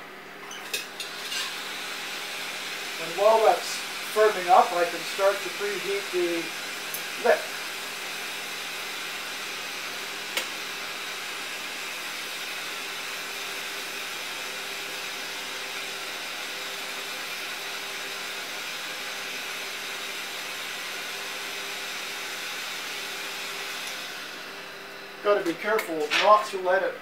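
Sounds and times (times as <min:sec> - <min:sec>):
gas torch flame hissing: 0:01.0 - 0:08.9.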